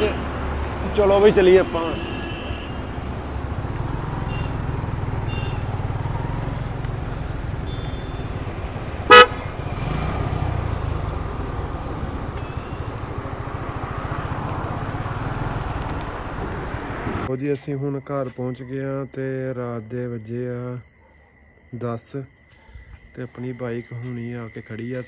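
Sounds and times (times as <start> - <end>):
motorcycle rumbling: 0.0 - 17.3
vehicle horn toot: 1.2 - 2.9, 4.2 - 5.8, 7.6 - 8.3, 9.0 - 9.5.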